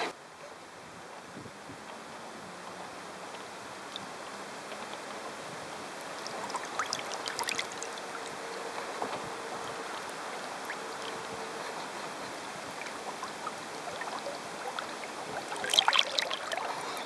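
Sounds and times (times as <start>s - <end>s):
water rushing along boat hull: 0.0s - 17.0s
small water splashes: 6.0s - 17.0s.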